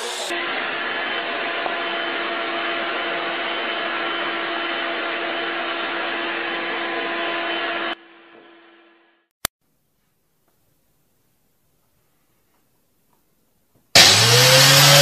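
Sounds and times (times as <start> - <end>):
vacuum cleaner running: 0.0 - 8.8, 14.0 - 15.0.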